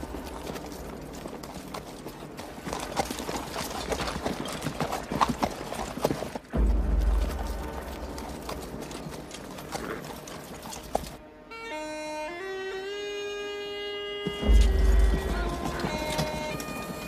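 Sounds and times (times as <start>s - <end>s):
horses galloping: 0.0s - 11.2s, 14.2s - 17.0s
deep bass rumble: 6.6s - 9.7s.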